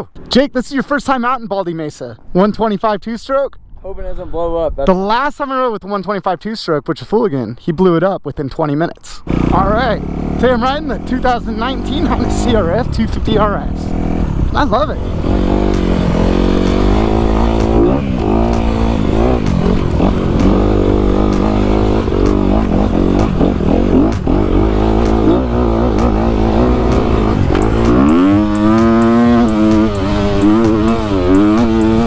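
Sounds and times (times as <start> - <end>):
motorcycle engine revving: 9.2 - 32.0.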